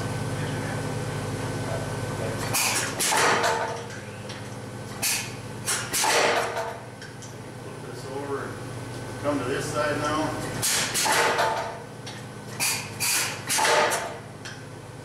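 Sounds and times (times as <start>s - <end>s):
power hammer striking steel: 2.6s - 3.8s, 5.0s - 6.8s, 10.6s - 11.8s, 12.6s - 14.2s.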